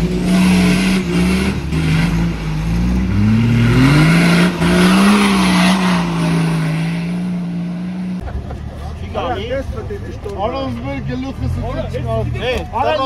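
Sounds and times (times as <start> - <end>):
engine revving hard: 0.0 - 7.6.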